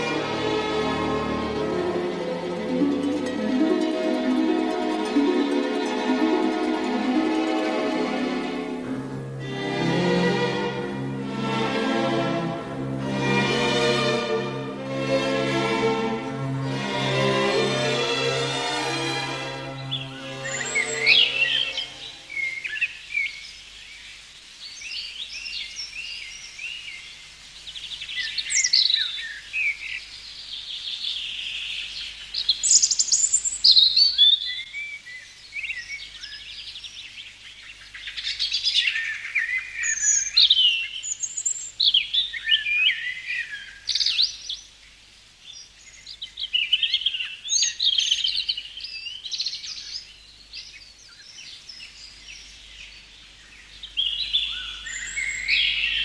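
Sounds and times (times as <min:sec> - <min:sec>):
songbirds singing: 0:00.0 - 0:56.0.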